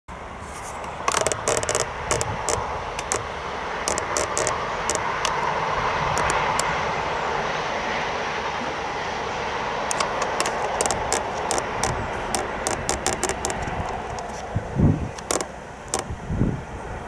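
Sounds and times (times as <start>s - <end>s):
approaching train: 0.1s - 17.0s
tripod head creaking clicks: 0.8s - 5.5s, 6.1s - 6.7s, 9.9s - 14.5s, 15.1s - 16.1s.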